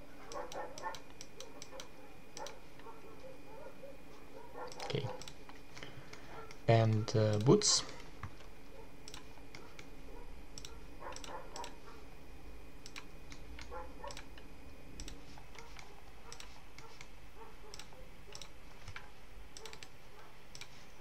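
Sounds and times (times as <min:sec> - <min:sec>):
low room hum: 0:00.0 - 0:21.0
mouse and keyboard clicks: 0:04.6 - 0:07.6, 0:08.2 - 0:09.9, 0:10.6 - 0:11.8, 0:12.8 - 0:17.1, 0:17.7 - 0:19.9, 0:20.5 - 0:20.8.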